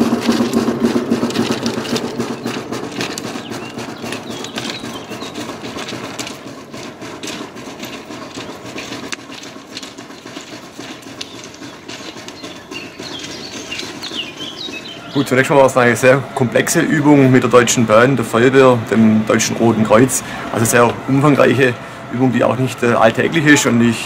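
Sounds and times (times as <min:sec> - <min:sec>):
trolley wheels rattling on rails: 0:00.0 - 0:24.0.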